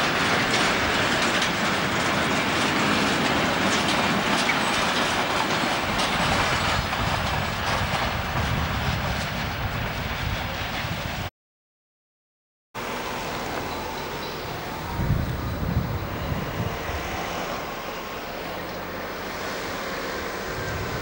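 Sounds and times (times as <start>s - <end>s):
freight train wheels clacking: 0.0s - 11.2s.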